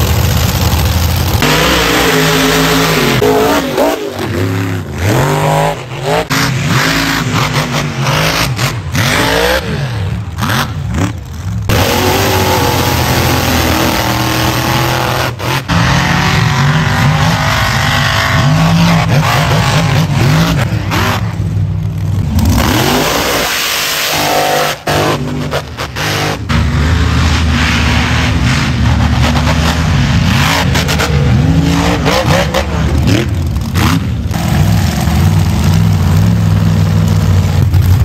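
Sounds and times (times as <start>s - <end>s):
buggy engines revving hard: 0.0s - 38.0s.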